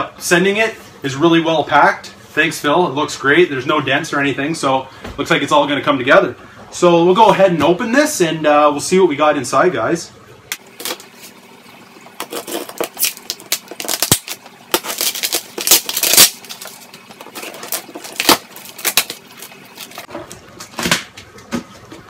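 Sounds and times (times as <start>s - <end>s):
packing tape tearing: 12.2s - 20.1s.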